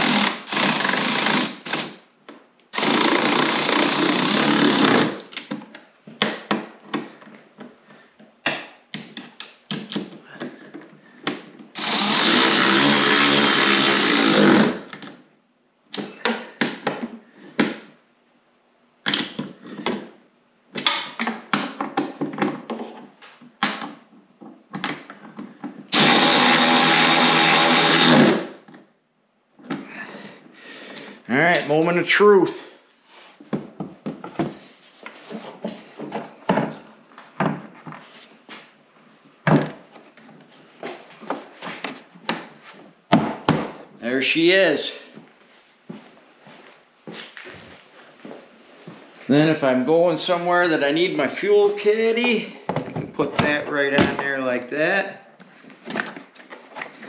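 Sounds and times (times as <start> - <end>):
cordless power driver running: 0.0 - 1.9, 2.8 - 5.1, 11.8 - 14.8, 25.9 - 28.5.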